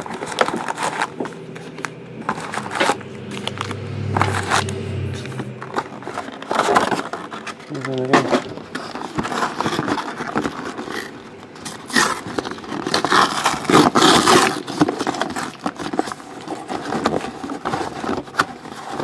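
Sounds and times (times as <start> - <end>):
cardboard scraping and rustling: 0.0 - 19.0.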